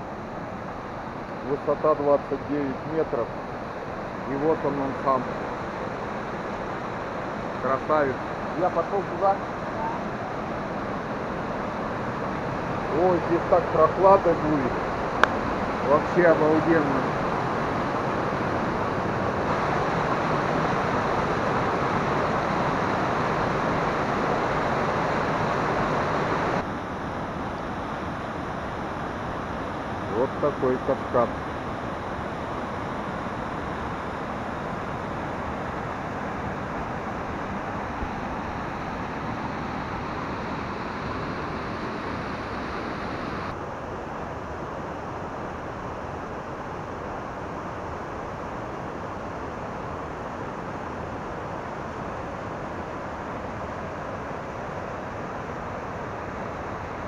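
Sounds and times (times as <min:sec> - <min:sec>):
waterfall rushing: 0:01.5 - 0:26.6, 0:29.0 - 0:43.6.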